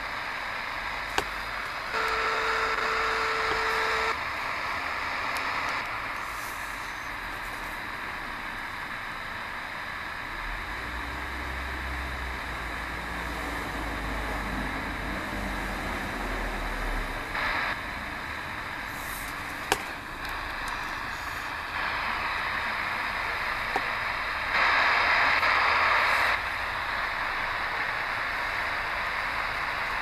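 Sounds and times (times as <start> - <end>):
radio static hiss: 0.0 - 30.0.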